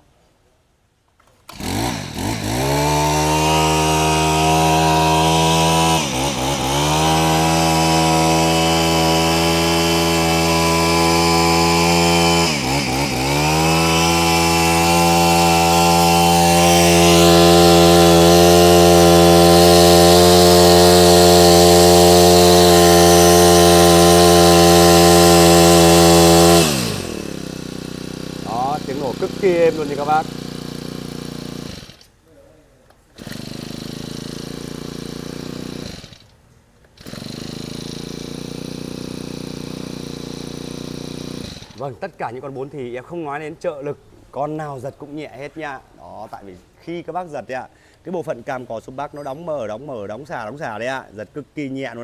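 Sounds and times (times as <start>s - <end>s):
brush-cutter engine running: 1.4s - 32.1s, 33.1s - 42.1s.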